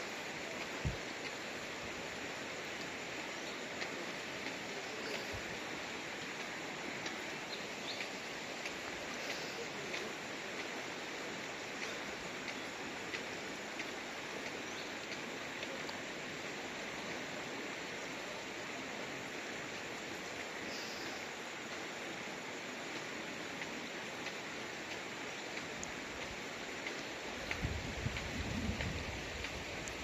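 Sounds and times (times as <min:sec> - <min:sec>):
river running over rocks: 0:00.0 - 0:30.0
faint short ticks: 0:11.7 - 0:16.0, 0:22.9 - 0:30.0.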